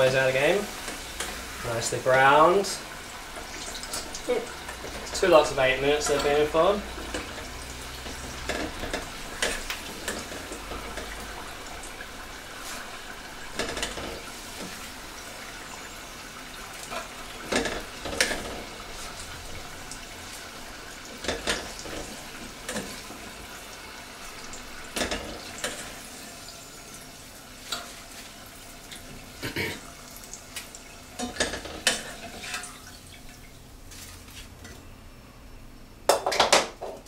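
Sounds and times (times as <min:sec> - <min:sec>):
potatoes frying in hot oil: 0:00.0 - 0:34.6
metal utensils clinking on pan: 0:03.8 - 0:11.2, 0:13.6 - 0:14.2, 0:31.2 - 0:32.8.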